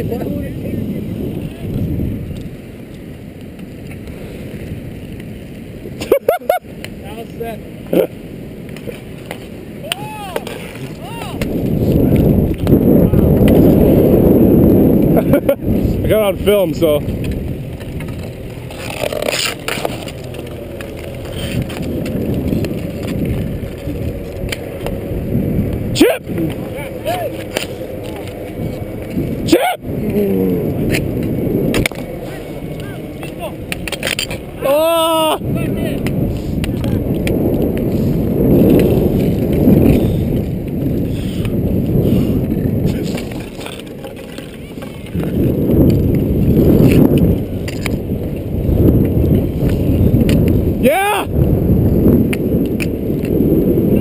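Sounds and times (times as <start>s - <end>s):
skate wheels rolling on asphalt: 0.0s - 54.0s
hockey sticks clacking: 8.7s - 11.8s, 17.1s - 25.0s, 26.3s - 29.3s, 30.8s - 34.6s, 42.9s - 45.3s, 47.6s - 48.0s.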